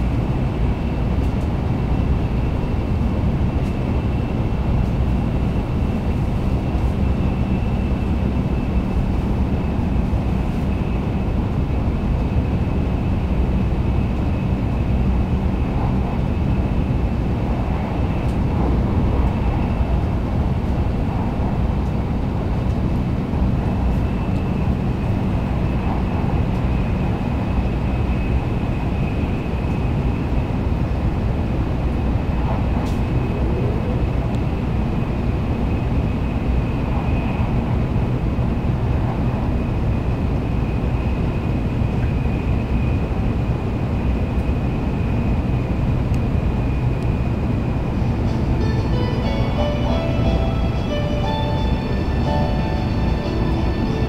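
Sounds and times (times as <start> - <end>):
train running rumble: 0.0 - 54.0
faint steady high tone: 48.3 - 54.0.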